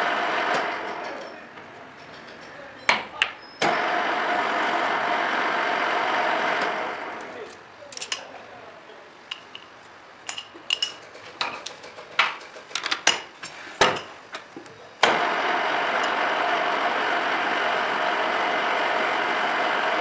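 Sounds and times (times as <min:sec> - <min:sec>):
lathe motor and gearing running: 0:00.0 - 0:02.5, 0:03.6 - 0:07.6, 0:15.0 - 0:20.0.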